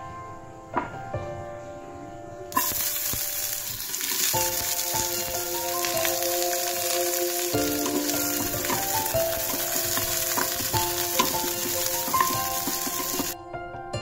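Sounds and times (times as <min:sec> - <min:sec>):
soft melodic music: 0:00.0 - 0:14.0
vegetables sizzling in oil: 0:02.5 - 0:13.4
wooden spatula scraping pan: 0:07.7 - 0:13.4.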